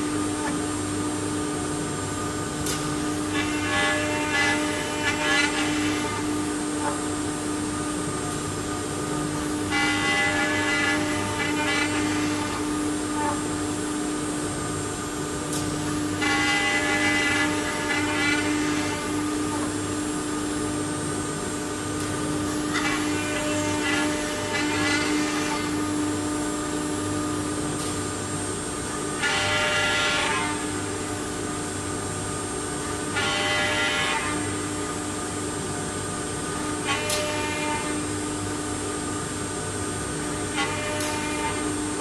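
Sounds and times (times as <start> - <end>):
machine hum: 0.0 - 42.0
router cutting wood: 3.3 - 7.0, 9.6 - 13.4, 16.2 - 20.0, 22.5 - 25.8.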